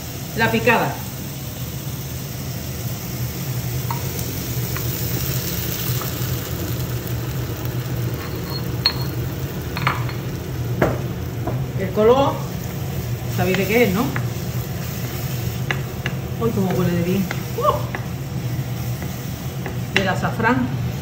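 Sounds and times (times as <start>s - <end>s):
sofrito sizzling in a frying pan: 0.0s - 21.0s
stone knocking on pan: 10.8s - 11.6s.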